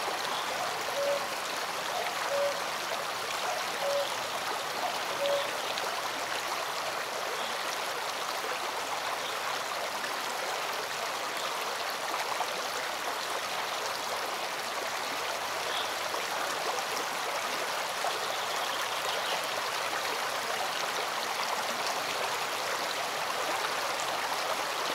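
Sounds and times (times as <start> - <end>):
stream rushing over stones: 0.0 - 24.9.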